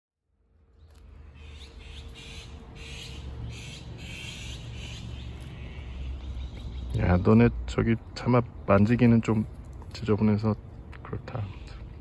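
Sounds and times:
rasping animal calls: 1.3s - 6.5s.

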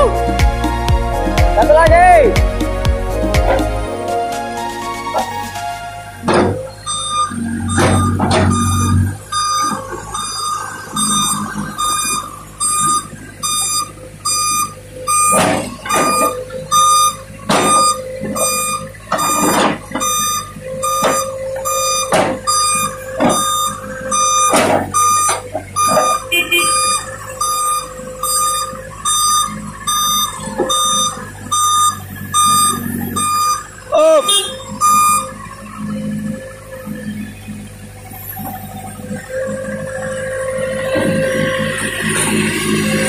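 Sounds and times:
diesel engine running: 0.0s - 43.0s
reversing alarm beeping: 4.8s - 43.0s
heavy metallic clanks: 6.2s - 14.0s, 14.6s - 33.9s.

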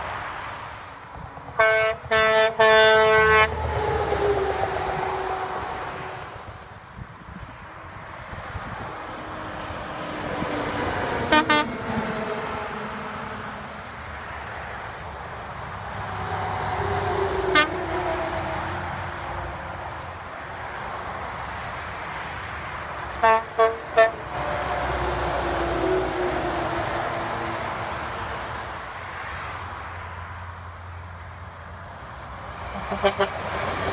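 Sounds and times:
passing truck engine and tyres: 0.0s - 33.9s
truck air horn toots: 1.6s - 3.7s, 11.2s - 11.8s, 17.4s - 18.2s, 23.2s - 24.7s, 32.7s - 33.5s.

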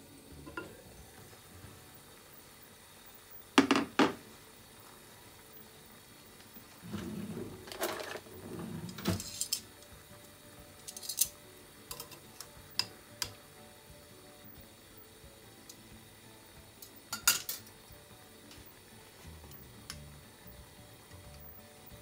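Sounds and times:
scraping and rustling: 6.8s - 9.6s
metal tongs clicking on pot: 10.8s - 13.4s, 16.8s - 17.7s.

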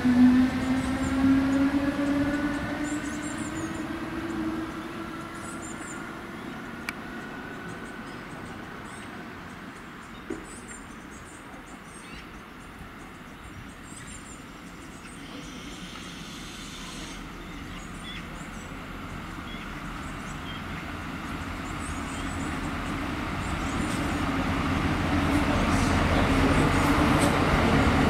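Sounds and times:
diesel train engines running: 0.0s - 28.0s
train wheels on rails: 14.4s - 28.0s.

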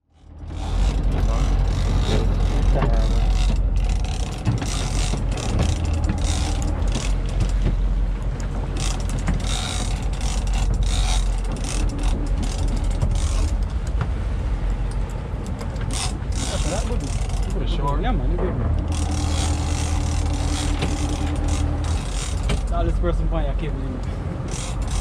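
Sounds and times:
steady low rumble: 0.0s - 25.0s
fishing reel ratcheting and clicking: 0.1s - 7.6s, 8.7s - 13.9s, 14.9s - 17.6s, 18.8s - 22.8s, 24.5s - 25.0s.

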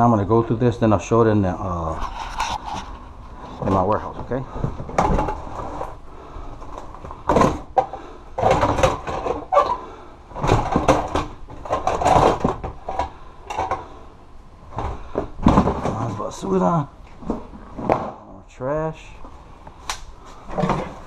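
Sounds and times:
plastic tote knocking and scraping: 10.4s - 13.8s, 14.7s - 16.2s.

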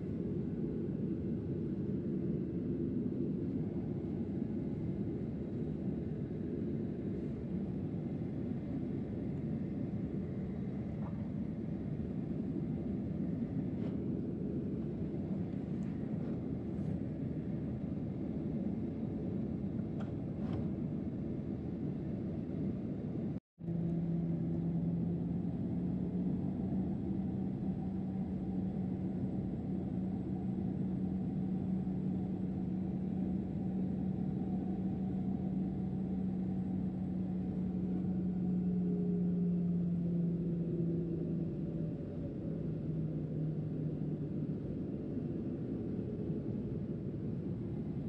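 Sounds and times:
airplane cabin engine drone: 0.0s - 48.0s
steady hum: 0.0s - 48.0s.

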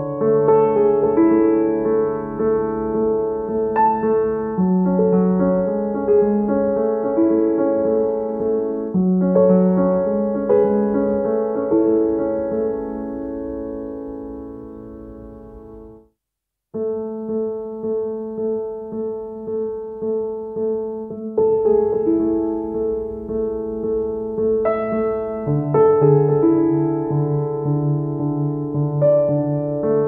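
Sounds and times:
gentle piano music: 0.0s - 16.1s, 16.8s - 30.0s.

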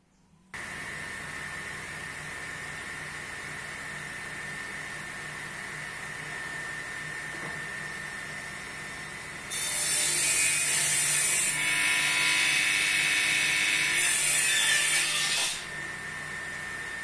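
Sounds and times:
table saw running: 5.9s - 17.0s
saw cutting through wood: 9.5s - 17.0s.

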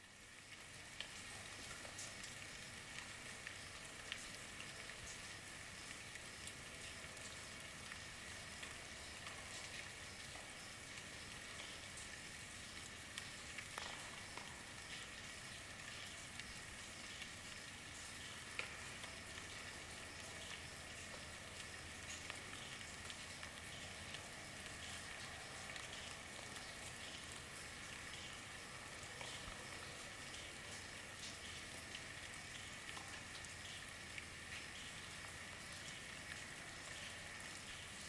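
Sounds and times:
raindrops ticking: 0.0s - 38.0s
steady rainfall: 0.0s - 38.0s.

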